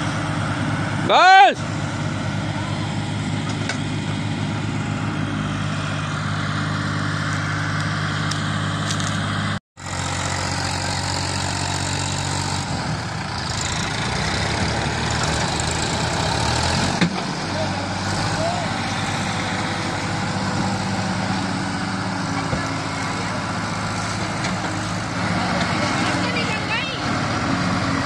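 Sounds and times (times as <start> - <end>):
diesel tractor engines running: 0.0 - 28.0.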